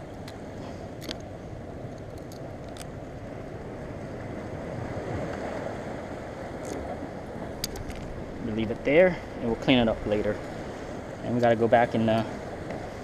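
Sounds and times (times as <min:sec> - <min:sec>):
surf against rocks: 0:00.0 - 0:13.0
wind: 0:00.0 - 0:13.0
faint clicks of fishing line: 0:00.2 - 0:01.3, 0:01.9 - 0:03.0, 0:06.6 - 0:07.0, 0:07.6 - 0:08.1.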